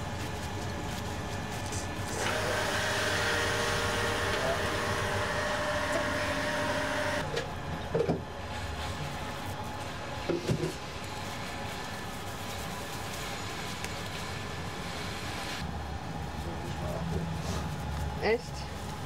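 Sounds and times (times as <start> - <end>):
small motor whirring: 2.2 - 7.2.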